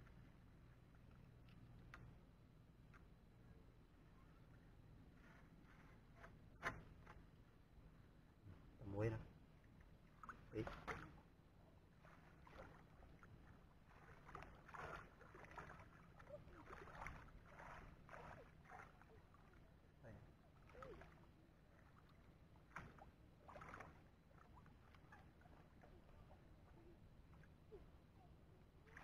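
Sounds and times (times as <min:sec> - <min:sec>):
muddy water sloshing: 0:09.5 - 0:29.0.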